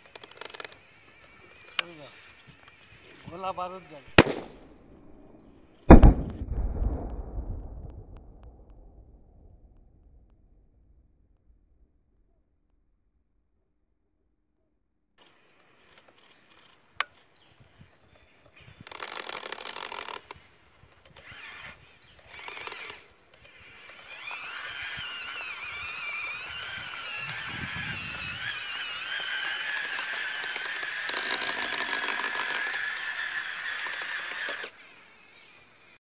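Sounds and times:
small electric motors whining: 0:00.0 - 0:04.1, 0:17.8 - 0:36.0.

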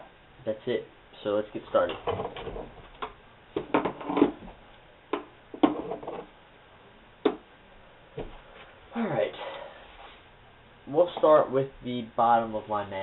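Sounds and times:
tools knocking on wooden desk: 0:05.1 - 0:06.2.

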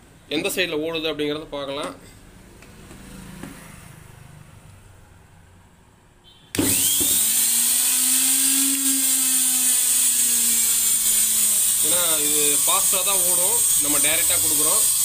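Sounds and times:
electric motor whining: 0:06.6 - 0:15.0.

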